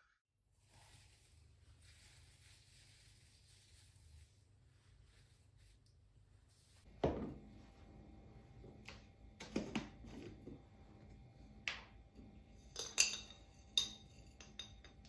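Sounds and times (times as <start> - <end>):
spoon clinking against glass jar: 12.7 - 15.0.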